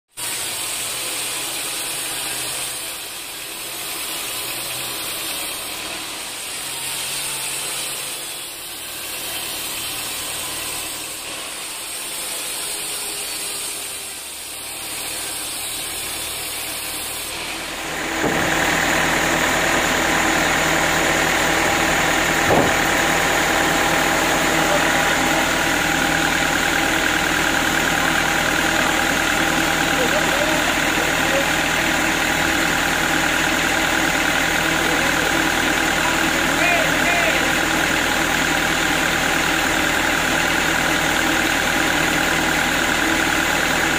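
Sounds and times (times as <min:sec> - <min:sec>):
band saw rushing through wood: 0:00.2 - 0:43.9
low machine drone: 0:17.6 - 0:43.9
knock: 0:22.4 - 0:22.8.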